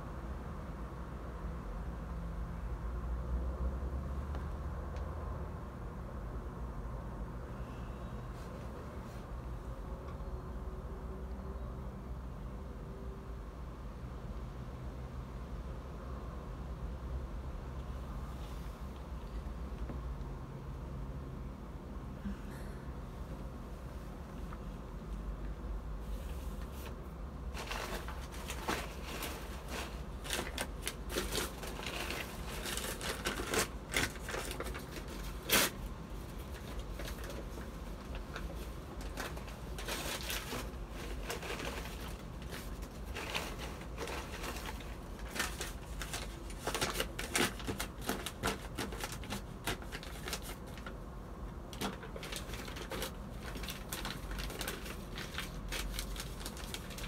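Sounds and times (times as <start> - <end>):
paper packet crinkling: 27.5 - 51.0, 51.6 - 57.0.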